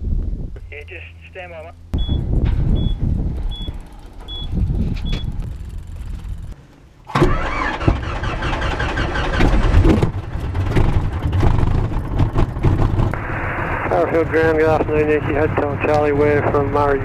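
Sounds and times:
low rumble: 0:00.0 - 0:06.6, 0:07.3 - 0:17.0
high electronic beep: 0:02.0 - 0:02.2, 0:02.8 - 0:05.3
aircraft piston engine running: 0:02.0 - 0:17.0.

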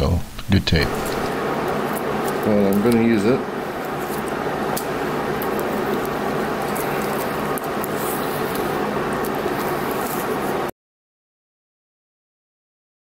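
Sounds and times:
steady background hum: 0:00.0 - 0:10.7
hands wrapping tape: 0:00.9 - 0:03.1, 0:03.8 - 0:10.6.

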